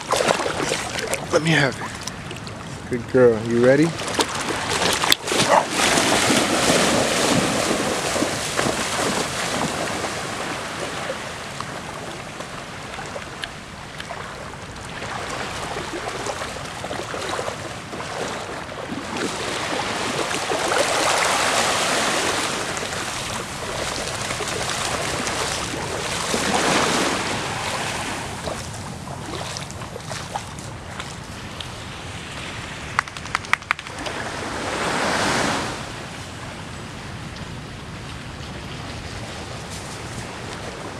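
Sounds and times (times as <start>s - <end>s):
small waves lapping shore: 0.0s - 40.9s.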